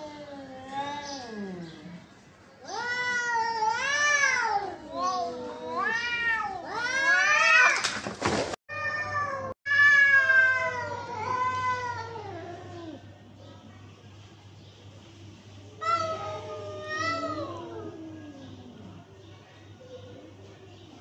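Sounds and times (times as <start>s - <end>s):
cats yowling: 2.6s - 7.8s, 8.7s - 13.0s, 15.8s - 19.1s.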